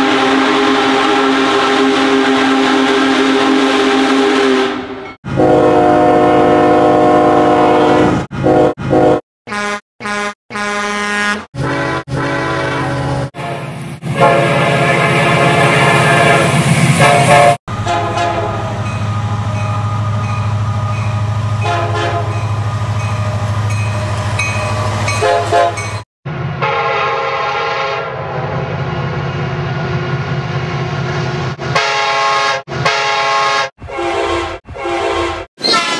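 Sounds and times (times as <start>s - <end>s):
multi-note air horn blasts: 0.0s - 18.8s, 21.6s - 22.3s, 26.6s - 28.2s, 31.7s - 35.9s
diesel locomotive engines rumbling: 0.0s - 35.9s.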